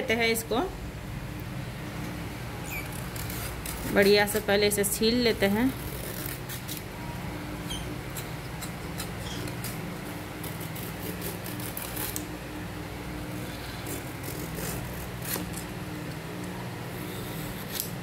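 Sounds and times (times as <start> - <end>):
steady low hum: 0.0 - 18.0
peeler scraping gourd skin: 2.6 - 4.4, 5.2 - 6.9, 7.6 - 12.3, 13.3 - 16.2, 16.9 - 18.0.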